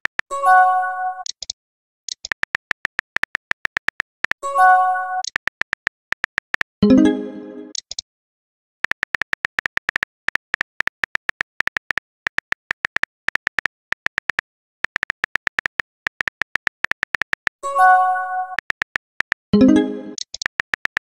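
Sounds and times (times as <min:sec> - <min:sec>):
phone keyboard typing clicks: 0:00.0 - 0:00.3, 0:01.2 - 0:04.4, 0:05.2 - 0:06.8, 0:08.8 - 0:17.6, 0:18.5 - 0:21.0.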